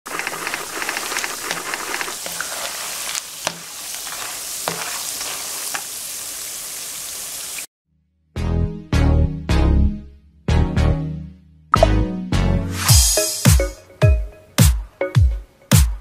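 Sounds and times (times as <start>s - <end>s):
peanuts sizzling in hot oil: 0.1s - 7.7s.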